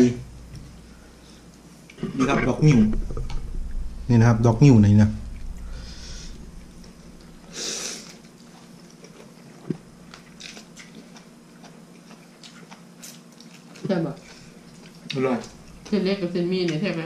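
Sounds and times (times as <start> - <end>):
chewing: 8.1 - 15.9.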